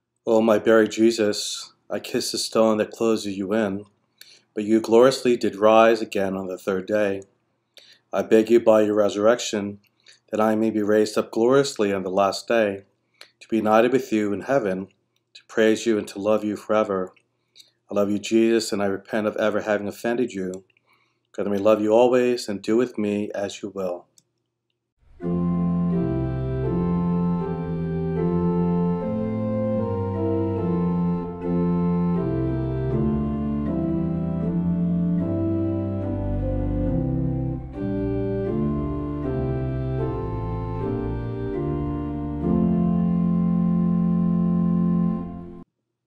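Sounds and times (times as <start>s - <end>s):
organ playing sustained chords: 25.1s - 45.6s.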